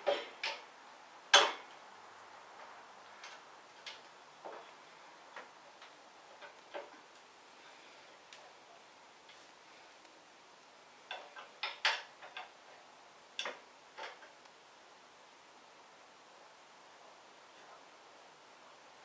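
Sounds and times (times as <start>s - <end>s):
metal bracket clicks and knocks: 0.0s - 0.6s, 1.3s - 1.7s, 11.1s - 12.5s.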